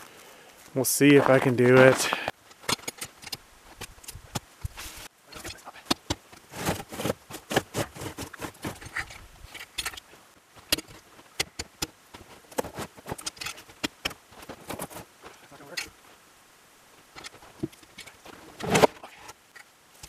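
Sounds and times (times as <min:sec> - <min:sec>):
boots crunching in snow: 0:00.0 - 0:02.3, 0:06.5 - 0:08.8
hook scraping on bark: 0:06.4 - 0:10.0.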